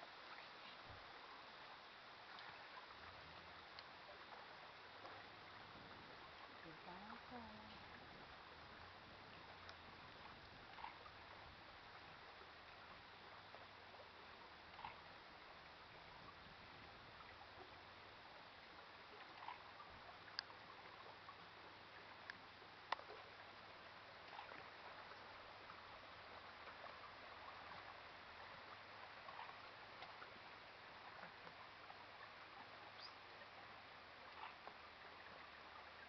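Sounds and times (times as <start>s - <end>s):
faint water lapping: 0.0s - 36.0s
small sharp clicks: 22.2s - 23.1s.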